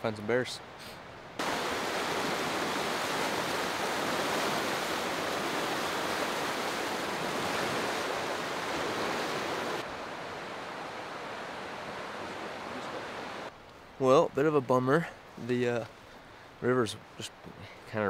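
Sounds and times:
river rushing through rapids: 1.4 - 13.5.

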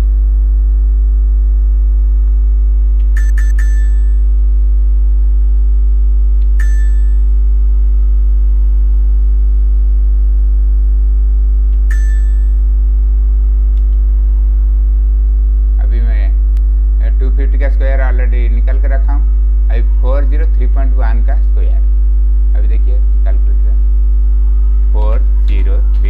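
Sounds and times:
electrical mains hum: 0.0 - 26.0
sharp clicks with short ring: 6.5 - 7.3, 11.9 - 12.6.

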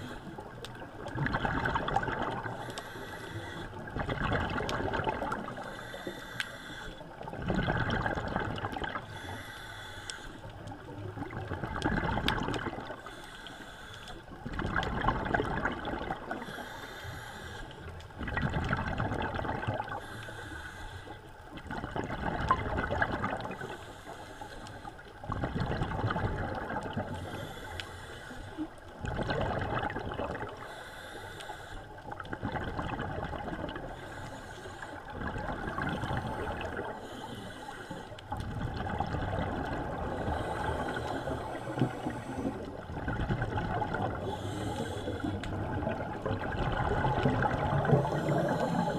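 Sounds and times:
diver breathing through regulator: 0.0 - 0.5, 2.4 - 4.1, 5.4 - 7.2, 8.9 - 10.6, 12.8 - 14.3, 16.2 - 18.0, 19.8 - 21.4, 23.5 - 25.1, 27.0 - 28.8, 30.5 - 32.0, 33.8 - 38.4, 39.9 - 42.8, 44.1 - 45.7, 47.1 - 48.9
exhaled bubbles rushing: 0.0 - 2.7, 3.8 - 5.7, 7.2 - 9.1, 10.8 - 13.0, 14.3 - 16.4, 18.1 - 20.0, 21.6 - 23.7, 25.2 - 27.2, 29.0 - 30.7, 32.0 - 34.0, 35.1 - 37.0, 38.3 - 44.6, 45.4 - 48.9.

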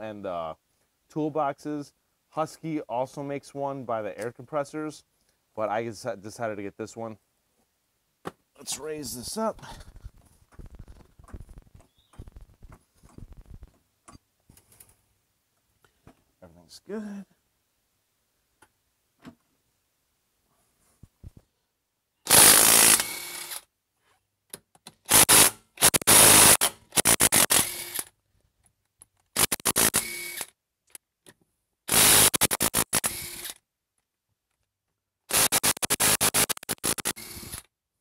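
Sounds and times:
impact wrench hammering: 35.3 - 37.2.

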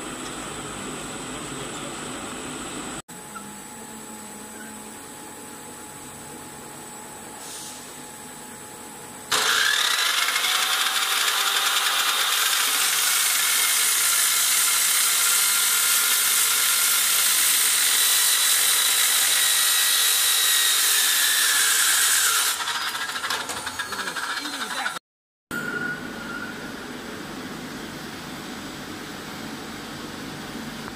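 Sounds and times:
saw grinding metal: 9.3 - 25.0.

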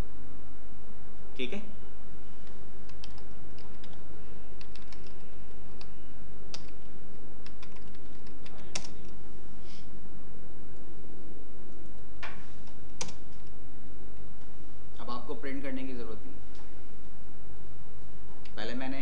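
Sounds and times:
steady low hum: 0.0 - 19.0
keyboard typing clicks: 2.8 - 4.0, 4.6 - 9.2.

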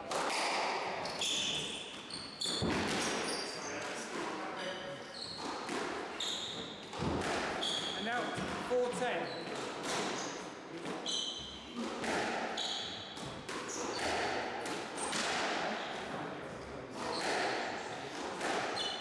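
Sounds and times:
shoes squeaking on wooden floor: 1.0 - 3.8, 5.0 - 11.8, 12.6 - 14.2.

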